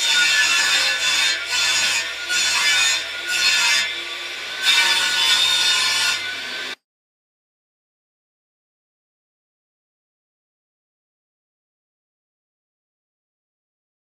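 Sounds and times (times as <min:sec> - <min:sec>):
hand saw cutting wood: 0:00.0 - 0:06.8.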